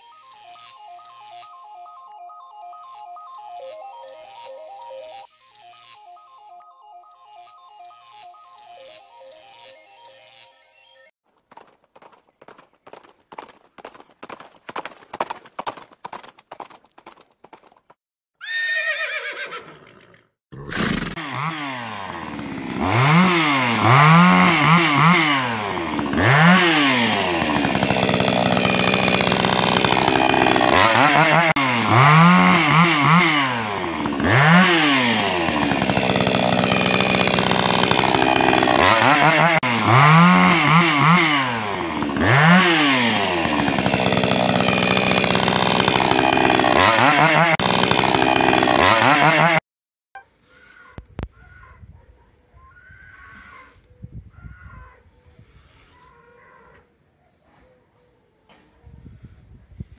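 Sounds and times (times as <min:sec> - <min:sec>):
chainsaw revving: 0:07.4 - 0:11.1, 0:20.0 - 0:49.6
galloping hoofbeats: 0:11.3 - 0:18.0
horse whinnying: 0:18.4 - 0:21.2.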